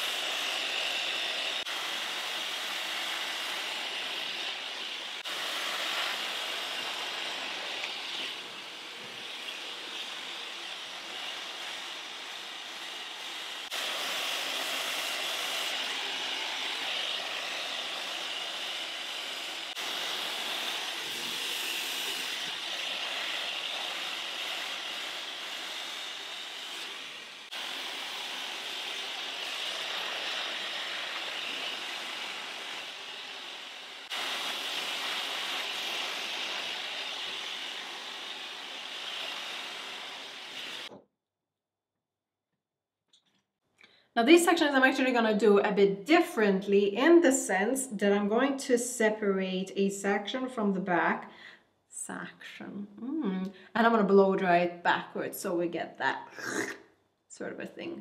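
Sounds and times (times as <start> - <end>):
hair dryer blowing: 0.0 - 41.0.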